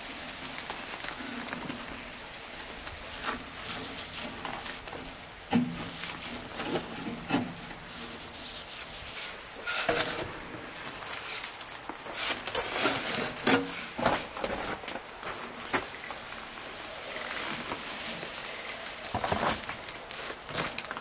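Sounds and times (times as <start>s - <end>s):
wet concrete sliding onto gravel: 0.0s - 21.0s
wheelbarrow knocks and scuffs: 3.2s - 8.2s, 9.1s - 16.0s.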